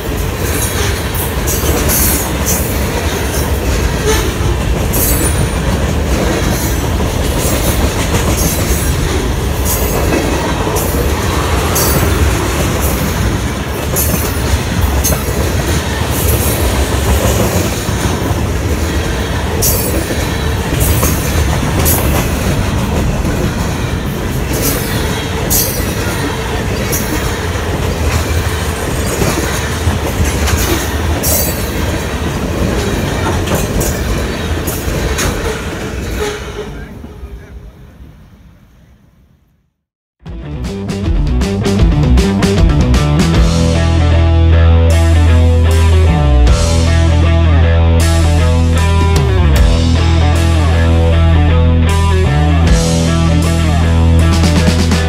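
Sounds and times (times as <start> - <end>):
wheels clicking on rail: 0.0 - 36.5
freight train wheels rumbling: 0.0 - 38.9, 40.5 - 55.0.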